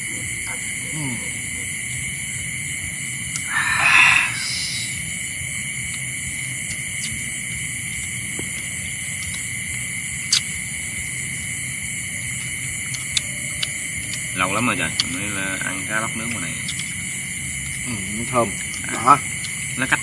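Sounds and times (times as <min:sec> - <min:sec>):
insects chorus: 0:00.0 - 0:20.0
rush of noise: 0:03.4 - 0:05.1.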